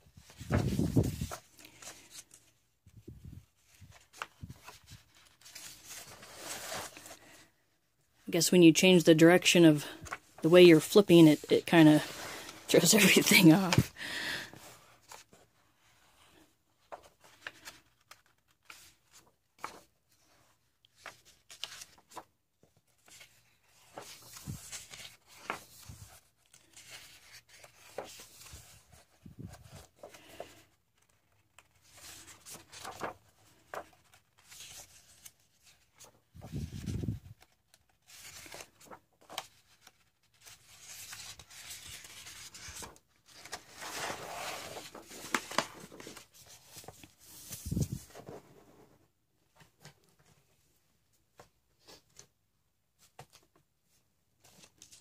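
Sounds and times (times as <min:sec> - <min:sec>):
book pages turning: 0:00.2 - 0:02.6, 0:03.6 - 0:07.4, 0:16.8 - 0:48.7.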